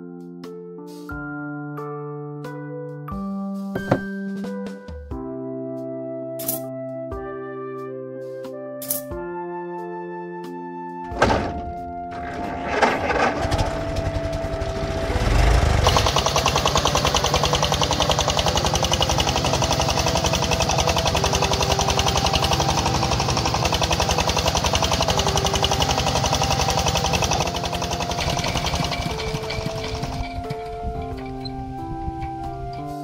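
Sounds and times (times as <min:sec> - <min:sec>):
background music: 0:00.0 - 0:33.0
tractor engine chugging: 0:12.2 - 0:32.9.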